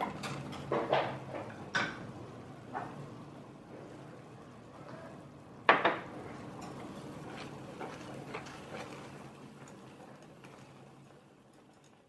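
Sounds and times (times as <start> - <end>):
water bubbling in a pot: 5.3 - 12.0.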